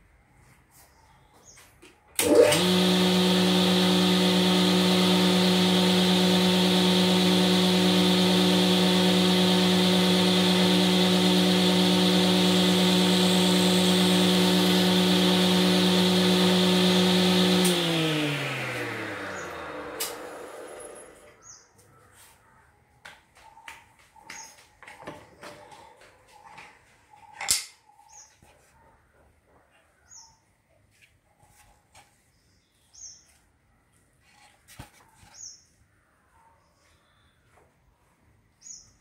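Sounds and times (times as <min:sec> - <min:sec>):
drill motor humming: 0:02.2 - 0:21.4.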